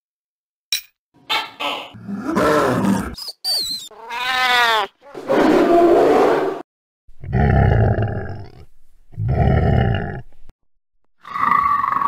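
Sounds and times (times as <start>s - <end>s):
animal cry with wavering pitch: 1.7s - 6.6s
deep animal roars: 2.0s - 3.2s, 7.2s - 10.3s
rasping animal growl: 2.0s - 3.2s, 7.2s - 10.4s.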